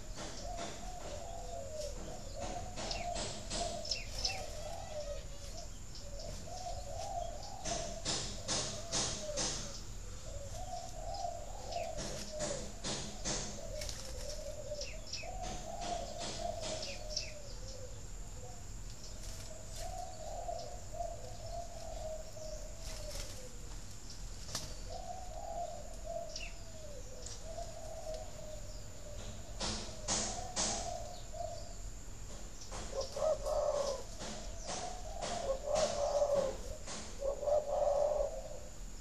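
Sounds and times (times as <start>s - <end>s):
doves cooing: 0.0s - 31.8s, 32.7s - 39.0s.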